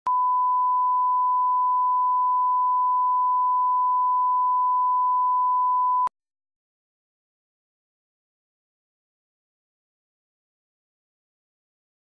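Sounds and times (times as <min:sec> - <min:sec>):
sine test tone: 0:00.1 - 0:06.1.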